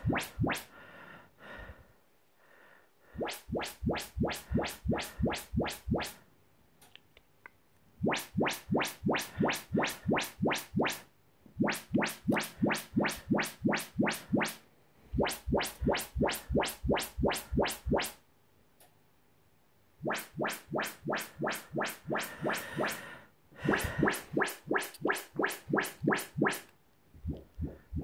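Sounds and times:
rising frequency sweeps from speakers: 0.0s - 0.7s, 3.2s - 6.2s, 15.2s - 18.2s.

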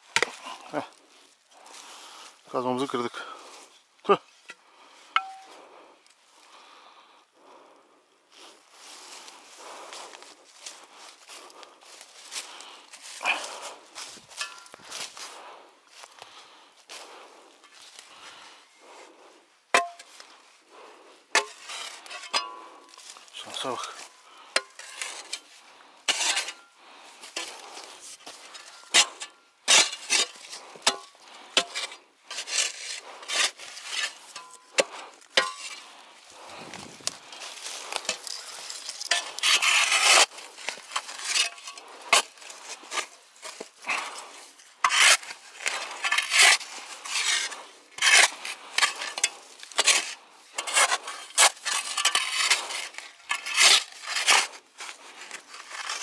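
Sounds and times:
pick striking stony soil: 0.0s - 0.8s, 5.2s - 5.5s, 19.7s - 20.3s, 26.1s - 35.9s, 36.5s - 56.0s
pick scraping soil: 0.0s - 5.6s, 8.8s - 16.1s, 16.9s - 56.0s.

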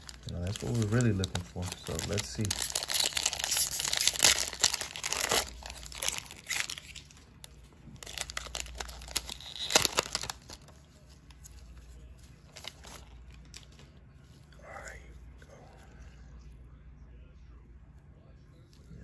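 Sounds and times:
cellophane wrapper crinkling: 0.0s - 14.0s
cards rustling: 0.0s - 14.5s.

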